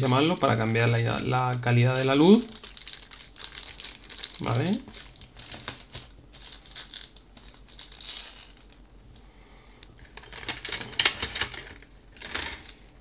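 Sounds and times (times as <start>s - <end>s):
plastic packaging crinkling: 0.0s - 8.8s
plastic parts clicking and rattling: 0.0s - 8.8s, 10.0s - 13.0s.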